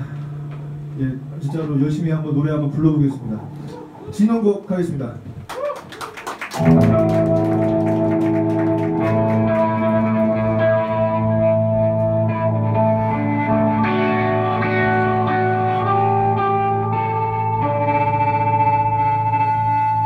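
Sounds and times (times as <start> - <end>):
band playing slow guitar chords: 0.0 - 4.0, 6.6 - 20.0.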